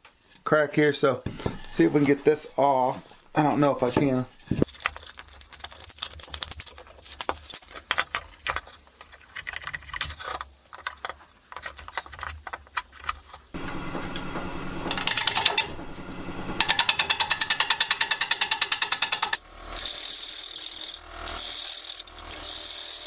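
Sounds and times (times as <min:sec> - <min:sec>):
wood lathe running: 0:16.5 - 0:23.0.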